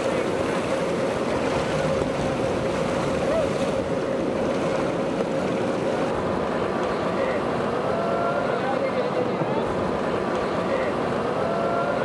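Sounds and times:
outboard motor running: 0.0s - 12.0s
surf: 0.0s - 12.0s
wind: 0.0s - 12.0s.

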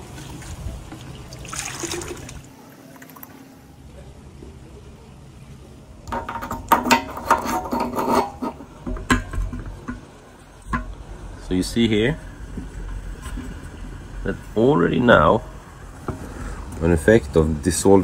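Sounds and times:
water splashing in metal tank: 0.0s - 2.5s.

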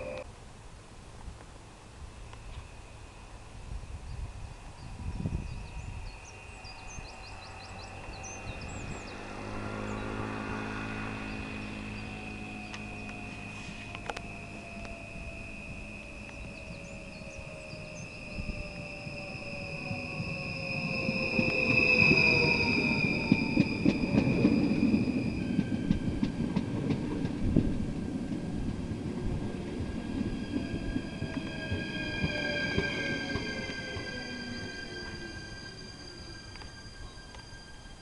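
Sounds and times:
train motor whine: 0.0s - 0.2s, 2.2s - 38.0s
train rumble and clatter: 1.2s - 38.0s
high electrical whines: 2.1s - 26.2s
high brake squeal: 2.5s - 26.2s, 30.2s - 38.0s.

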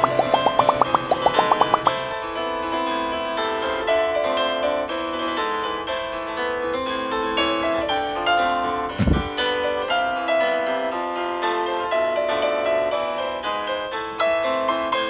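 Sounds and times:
light keyboard melody: 0.0s - 2.3s.

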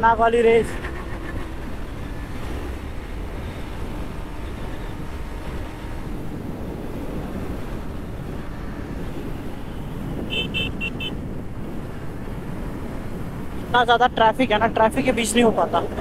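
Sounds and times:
faint motorcycle engine: 0.0s - 11.5s
wind rush over microphone: 0.0s - 16.0s.

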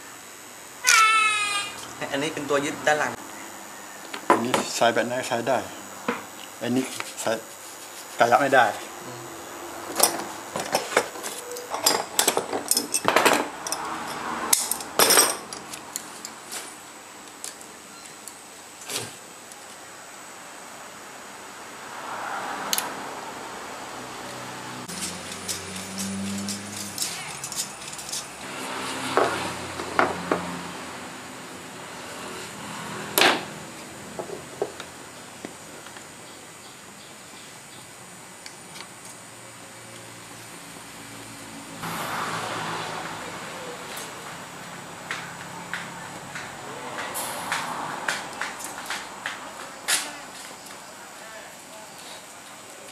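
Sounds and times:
knocks and clinks on a workbench: 9.9s - 15.7s, 29.1s - 30.5s
metal shears snipping: 24.9s - 28.5s.

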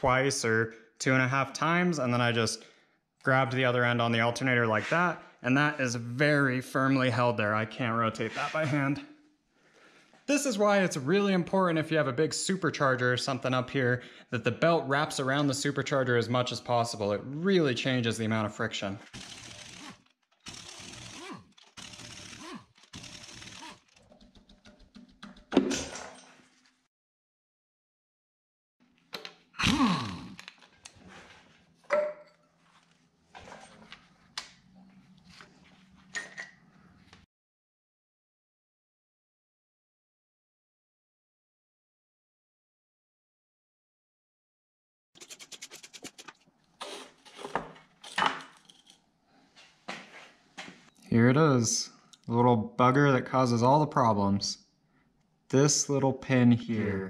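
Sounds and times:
rapid rattling clicks: 19.1s - 25.5s.

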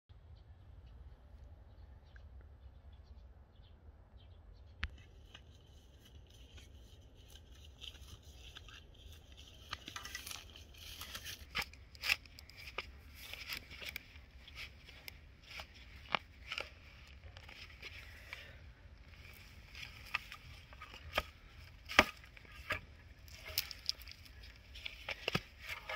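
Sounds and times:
spade digging into soil: 9.9s - 25.9s.

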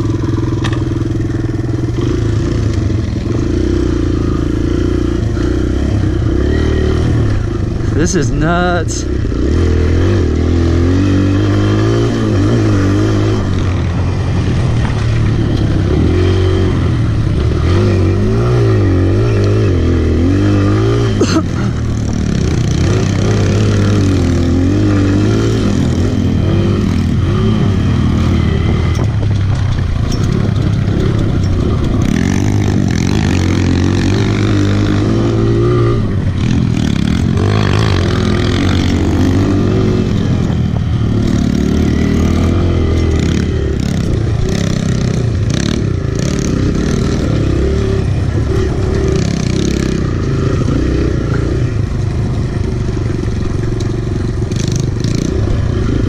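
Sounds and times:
motorbike engine revving: 0.0s - 56.0s.

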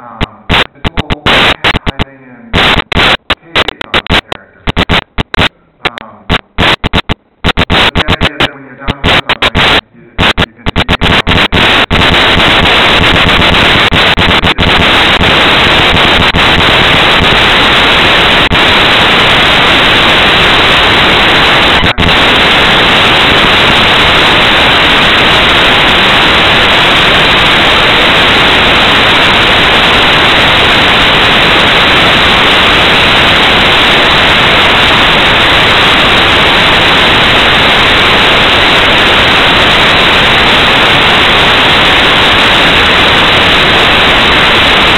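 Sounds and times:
loud static hiss: 0.0s - 44.9s.

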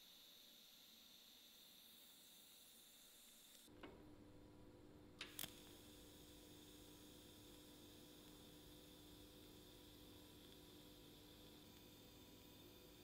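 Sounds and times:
welding arc hum and hiss: 0.0s - 13.0s
sharp clicks of arc striking: 5.2s - 5.8s.

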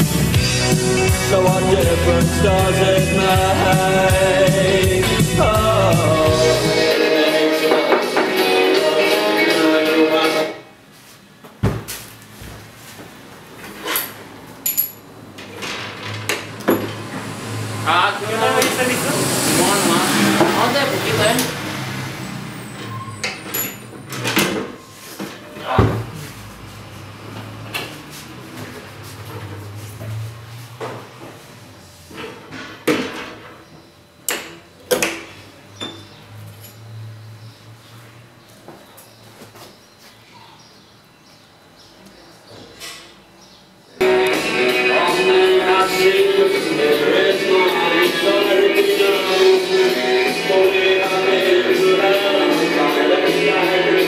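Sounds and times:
metallic squeak: 22.5s - 25.6s, 35.8s - 37.0s.

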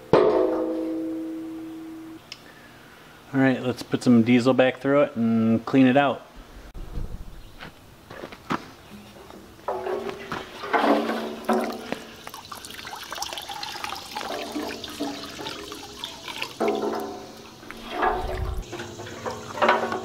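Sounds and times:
fuel sloshing in metal tank: 9.7s - 20.0s
liquid draining into bucket: 10.6s - 20.0s.

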